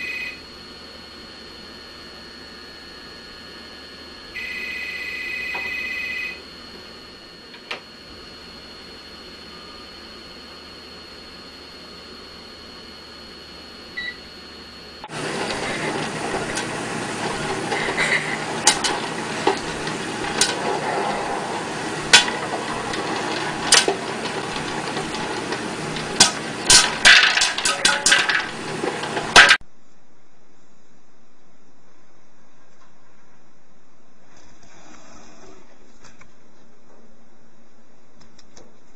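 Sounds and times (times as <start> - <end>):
popcorn popper steady noise: 0.0 - 29.6
popcorn popping: 15.0 - 29.6.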